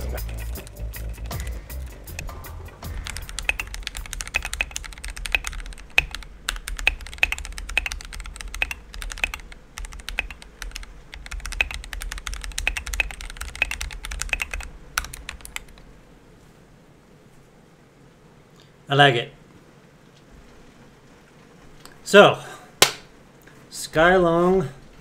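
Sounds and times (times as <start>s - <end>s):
low rumble: 0.0s - 5.0s
mechanical keyboard typing: 0.2s - 2.3s, 2.9s - 15.8s.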